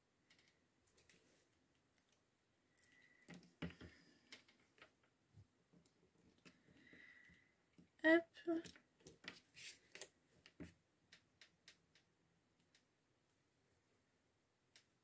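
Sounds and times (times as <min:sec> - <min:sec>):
paper and card rustling: 0:09.1 - 0:10.2.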